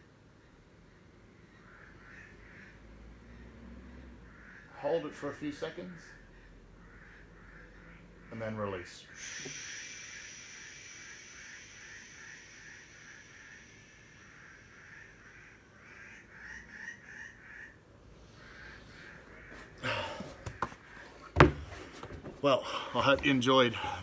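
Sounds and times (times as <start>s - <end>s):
chirping pulse: 6.2s - 21.0s
high-pitched animal drone: 9.2s - 15.7s.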